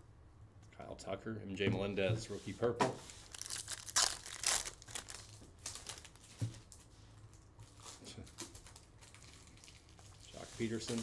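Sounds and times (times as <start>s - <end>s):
foil wrapper crinkling and tearing: 3.2s - 11.0s.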